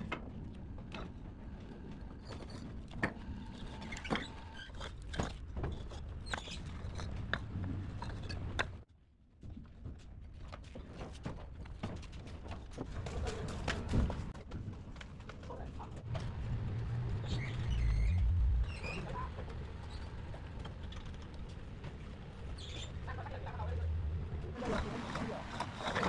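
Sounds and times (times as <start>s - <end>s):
clay bricks clacking: 4.1s - 8.9s
low rumble: 16.0s - 20.8s.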